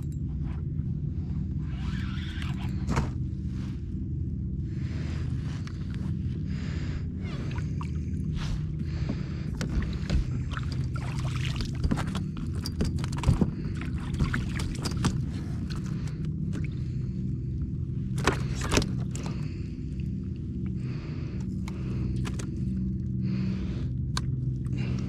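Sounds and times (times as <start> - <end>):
steady low rumble: 0.0 - 25.0
clicks and knocks from fishing gear: 9.6 - 16.7, 18.1 - 19.4, 21.4 - 22.7.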